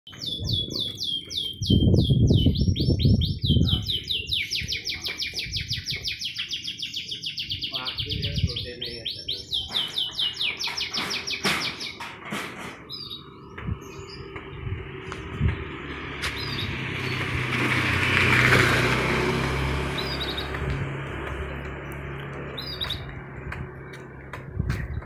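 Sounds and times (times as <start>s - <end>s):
canary singing trills: 0.1s - 12.0s, 19.9s - 20.6s, 22.5s - 23.2s
low rumbling noise: 12.8s - 25.0s.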